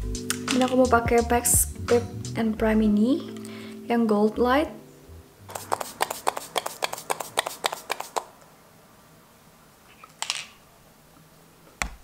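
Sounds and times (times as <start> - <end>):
short spray hiss: 5.5 - 8.3
spray bottle spritzing: 5.5 - 8.3.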